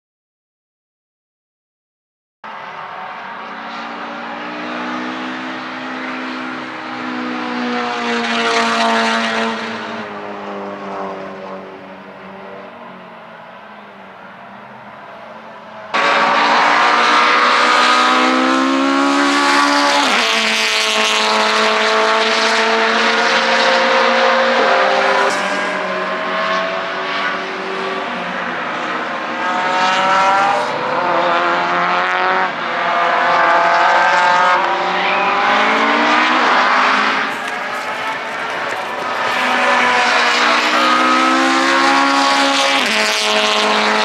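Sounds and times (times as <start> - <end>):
racing car engines at full throttle: 2.5 - 44.0.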